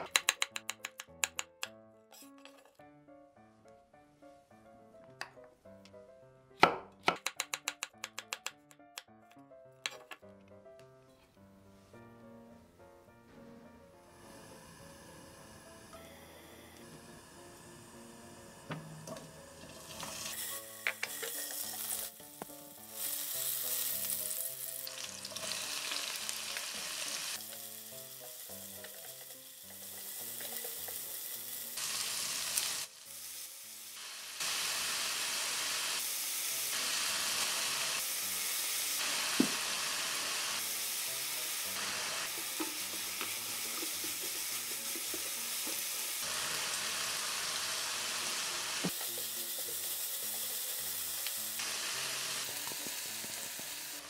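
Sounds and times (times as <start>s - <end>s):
food sizzling in oil: 16.4s - 54.0s.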